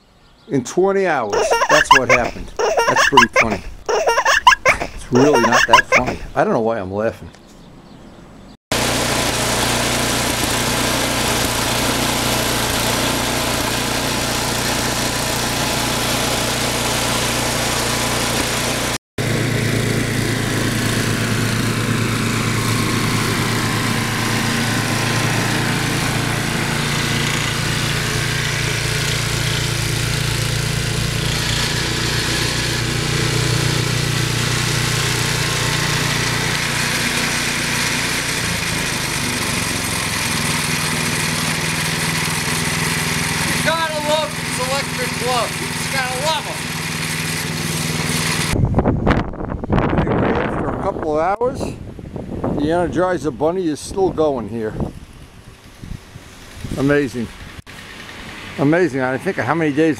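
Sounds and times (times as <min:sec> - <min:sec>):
snow blower engine running: 0:08.7 - 0:48.6.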